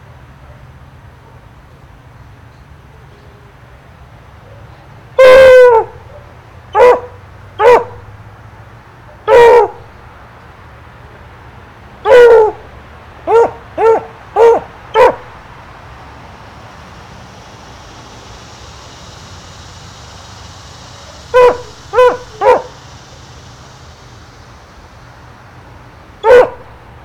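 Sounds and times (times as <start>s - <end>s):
dog barking: 4.4s - 8.1s, 9.1s - 9.9s, 12.1s - 12.7s, 13.3s - 15.4s, 21.3s - 22.8s, 26.2s - 26.7s.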